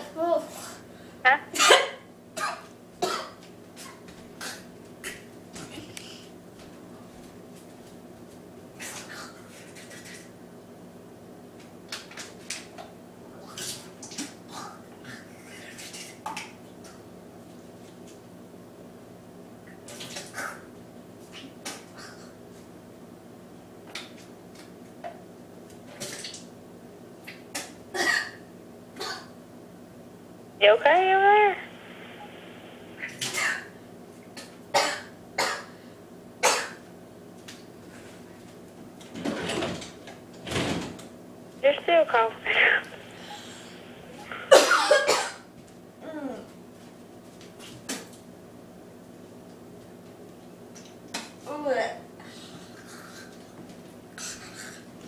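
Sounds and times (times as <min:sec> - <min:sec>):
person coughing and spluttering: 0:01.5 - 0:03.4, 0:27.6 - 0:28.4, 0:29.0 - 0:29.3, 0:33.0 - 0:33.7, 0:34.4 - 0:35.8, 0:36.4 - 0:36.8, 0:44.3 - 0:45.5.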